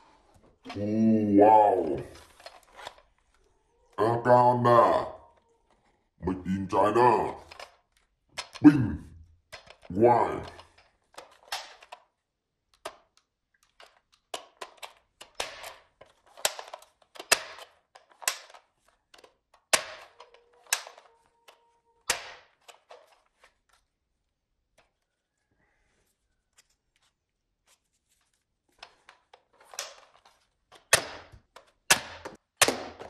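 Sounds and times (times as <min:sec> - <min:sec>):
sharp plastic snaps: 0:07.4 - 0:08.7, 0:09.4 - 0:12.1, 0:12.7 - 0:23.2, 0:28.8 - 0:33.0.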